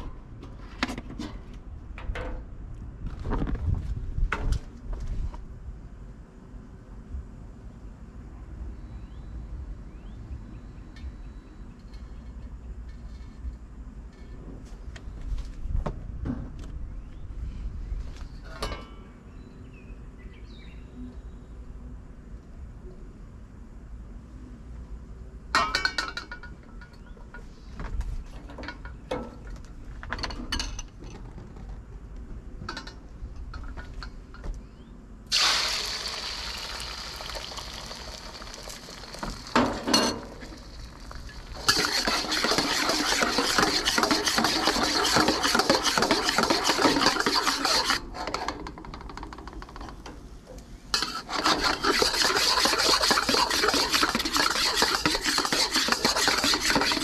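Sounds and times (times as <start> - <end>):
food sizzling in hot oil: 35.3 - 39.8, 40.4 - 48.0, 51.0 - 57.0
spatula scraping wok: 40.6 - 48.8, 50.9 - 57.0
utensils clinking on bowls: 41.6 - 48.0, 51.0 - 57.0.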